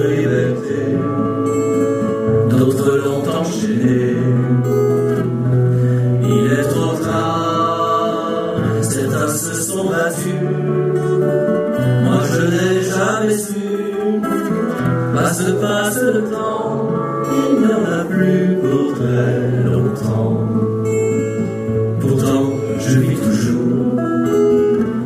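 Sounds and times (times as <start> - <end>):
acoustic guitar: 0.0 - 25.0
man singing: 0.0 - 25.0.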